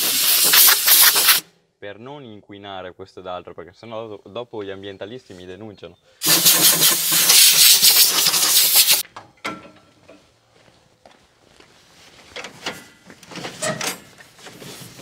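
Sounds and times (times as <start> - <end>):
compressed air blow gun hiss: 0.0 - 1.4, 6.2 - 9.0.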